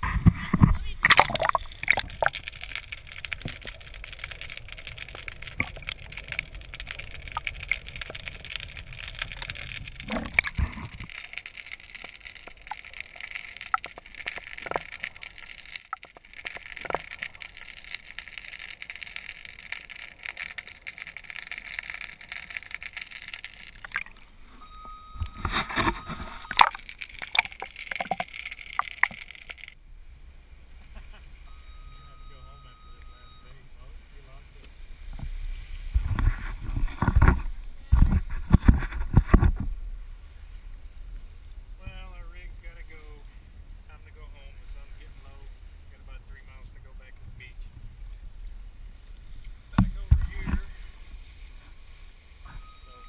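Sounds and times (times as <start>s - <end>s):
underwater knocks and clicks: 0.0s - 24.2s, 25.2s - 29.8s, 36.0s - 39.7s, 49.7s - 50.7s
muffled underwater hiss: 33.5s - 53.0s.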